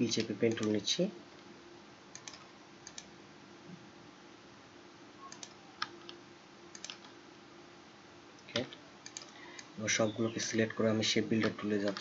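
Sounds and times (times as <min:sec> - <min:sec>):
faint steady hum: 0:00.0 - 0:12.0
computer mouse clicks: 0:00.1 - 0:00.8, 0:02.1 - 0:03.1, 0:05.3 - 0:07.2, 0:08.4 - 0:09.8, 0:11.4 - 0:12.0.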